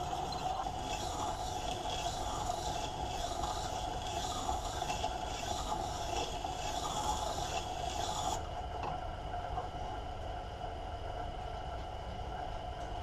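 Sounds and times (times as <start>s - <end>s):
blade scraping on grinding stone: 0.0s - 8.4s
grinder motor hum: 0.0s - 9.0s.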